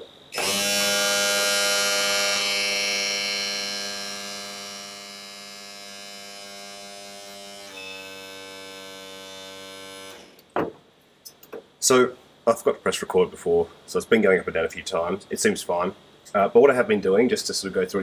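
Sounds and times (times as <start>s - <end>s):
electric motor whine: 0.3s - 10.4s.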